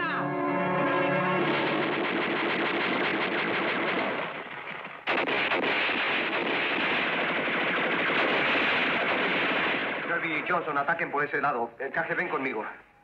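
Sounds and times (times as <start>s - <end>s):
rapid gunfire: 1.4s - 10.7s.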